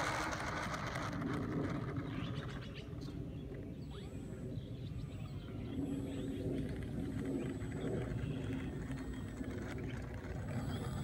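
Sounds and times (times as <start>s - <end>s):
low rumble: 0.0s - 11.0s
faint bird chirps: 2.0s - 6.7s
model plane motor humming: 5.2s - 11.0s.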